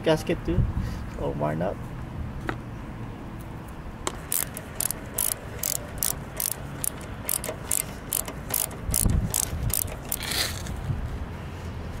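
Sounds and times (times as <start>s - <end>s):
screwdriver scraping gasket: 4.1s - 10.4s.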